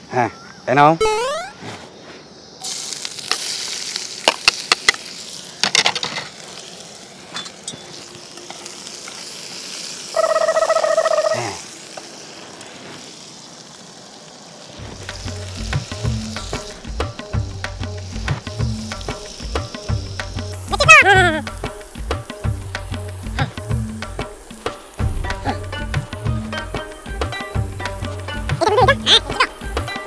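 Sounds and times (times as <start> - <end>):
vegetables sizzling in a wok: 1.0 - 30.0
music with a beat: 15.1 - 30.0.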